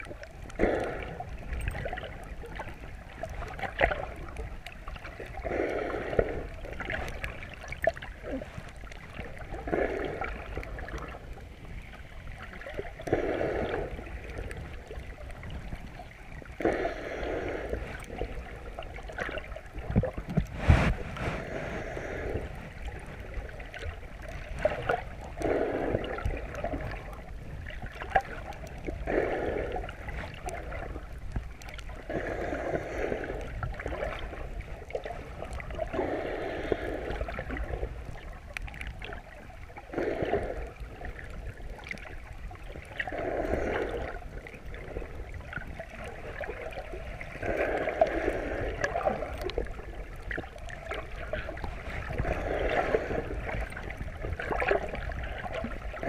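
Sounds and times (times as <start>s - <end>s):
underwater water noise: 0.0s - 56.0s
swimmer breathing: 5.3s - 6.8s, 16.5s - 18.6s, 20.5s - 23.7s, 32.0s - 34.5s, 35.8s - 38.0s, 43.1s - 45.3s, 47.2s - 50.2s, 51.4s - 54.0s.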